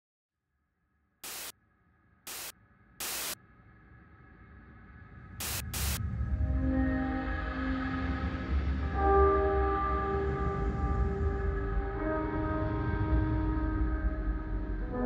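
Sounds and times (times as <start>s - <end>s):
white noise static bursts: 1.2s - 1.5s, 2.3s - 3.4s, 5.4s - 6.0s.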